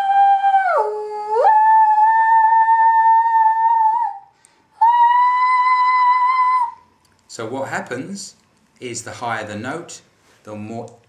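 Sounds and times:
woman singing sustained high notes: 0:00.0 - 0:06.8.

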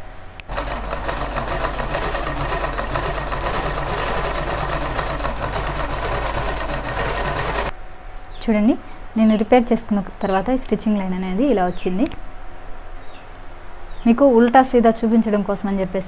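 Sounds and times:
sewing machine stitching: 0:00.4 - 0:07.7.

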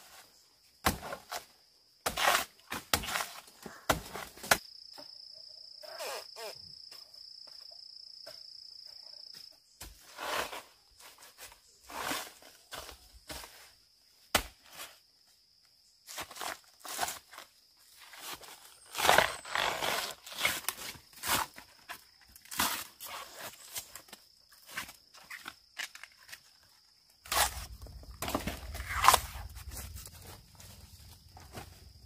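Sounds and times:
insect buzzing: 0:05.8 - 0:06.9
footsteps and rustling: 0:27.3 - 0:32.0.

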